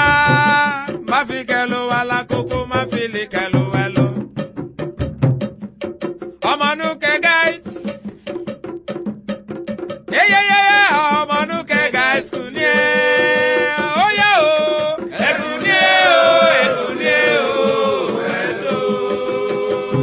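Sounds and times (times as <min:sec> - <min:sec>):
chant-like singing with music: 0:00.0 - 0:04.3, 0:06.4 - 0:08.2, 0:10.1 - 0:20.0.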